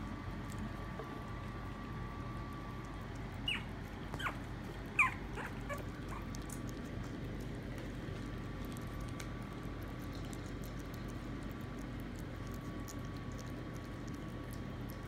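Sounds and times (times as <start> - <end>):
puppy eating from a bowl: 0.0 - 15.0
puppy whimpering: 3.4 - 6.8.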